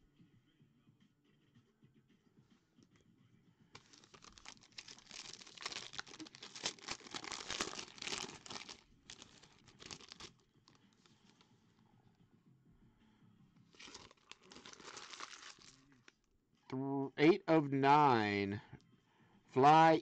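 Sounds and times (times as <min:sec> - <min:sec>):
foil pack crinkling and tearing: 0:03.8 - 0:10.4, 0:13.8 - 0:15.8.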